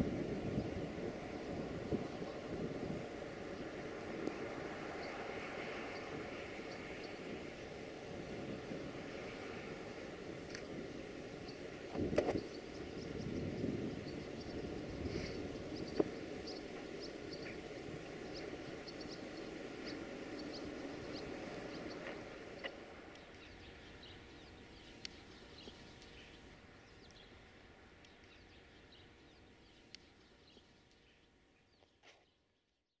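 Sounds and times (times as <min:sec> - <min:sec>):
freight train rumbling on rails: 0:00.0 - 0:25.5
small birds chirping: 0:00.4 - 0:32.7.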